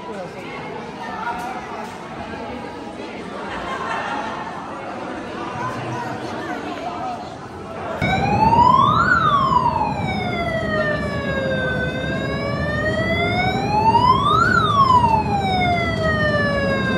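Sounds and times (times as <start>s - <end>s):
low rumbling noise: 8.0s - 16.9s
wailing siren: 8.0s - 16.9s.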